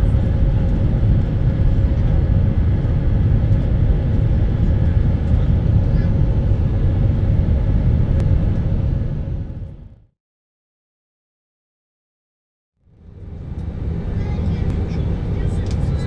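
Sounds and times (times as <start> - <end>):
jet engine roar in cabin: 0.0 - 10.1, 12.8 - 16.0.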